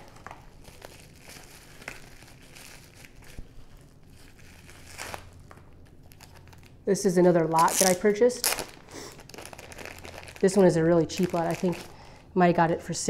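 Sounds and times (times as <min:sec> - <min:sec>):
bubble wrap crinkling: 0:00.0 - 0:12.6.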